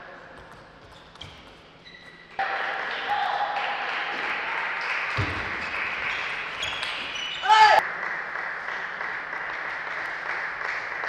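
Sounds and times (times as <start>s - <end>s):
shoe squeaks on floor: 0.5s - 2.4s, 6.6s - 7.8s.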